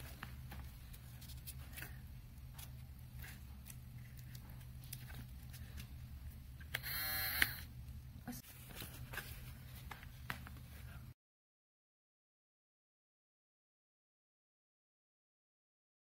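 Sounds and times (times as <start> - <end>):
low steady hum: 0.0 - 11.2.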